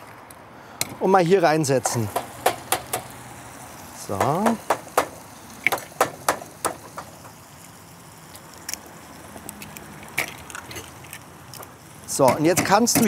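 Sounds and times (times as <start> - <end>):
faint steady hiss: 0.0 - 13.0
eggshells cracking: 7.6 - 11.8.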